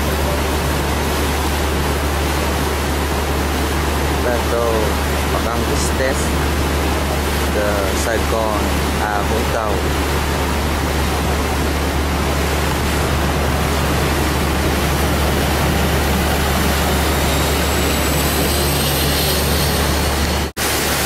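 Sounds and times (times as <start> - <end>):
boat engine drone: 0.0 - 21.0
wind and water rushing: 0.0 - 21.0.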